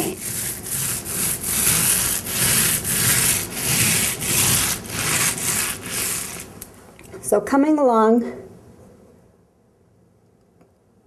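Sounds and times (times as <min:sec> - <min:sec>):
paint roller rasping on wall: 0:00.0 - 0:06.6.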